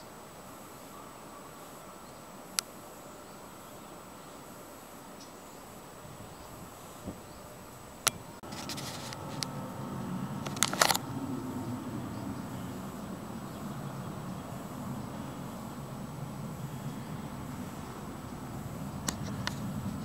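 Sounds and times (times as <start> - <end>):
short rustle: 8.4 - 9.7
low steady rumble: 8.4 - 20.0
camera handling clicks: 10.5 - 11.0.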